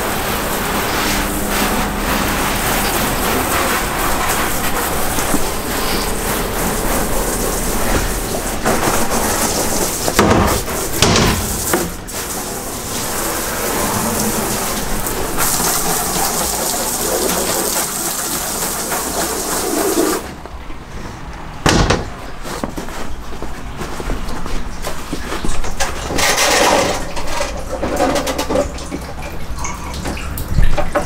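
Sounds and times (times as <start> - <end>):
hose spray hitting plastic walls: 0.0 - 20.4.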